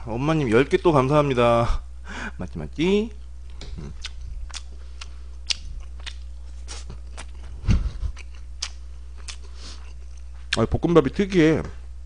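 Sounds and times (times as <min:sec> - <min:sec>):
low hum: 0:00.0 - 0:12.0
chewing food: 0:03.8 - 0:10.6.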